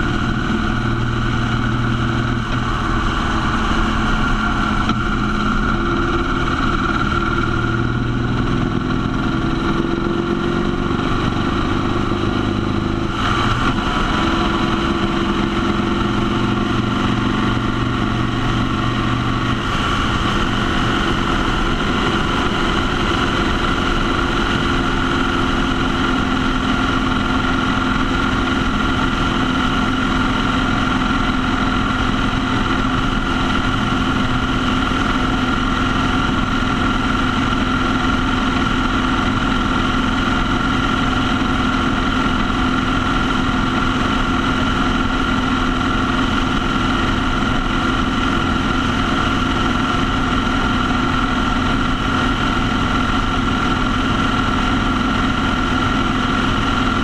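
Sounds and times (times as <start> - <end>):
motorcycle engine drone: 0.0 - 57.0
road noise: 0.0 - 57.0.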